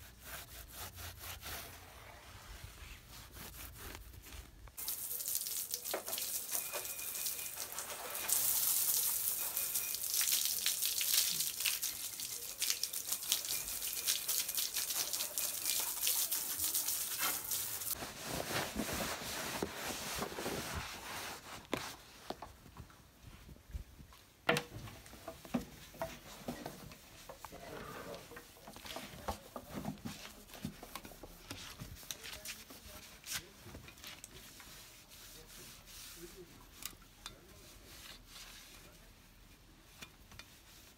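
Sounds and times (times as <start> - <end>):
cloth rubbing on metal: 0.0 - 4.8, 12.3 - 22.6, 31.2 - 36.8, 37.4 - 40.9
garden hose spraying water: 4.8 - 18.0.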